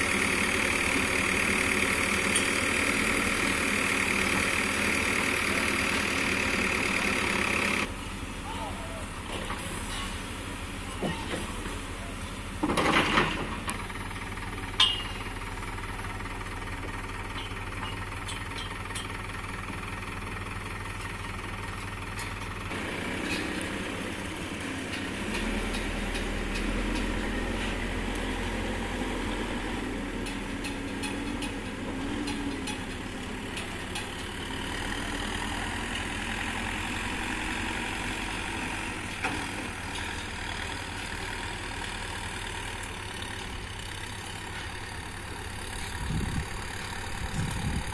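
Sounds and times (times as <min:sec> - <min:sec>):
diesel engine running: 0:00.0 - 0:47.9.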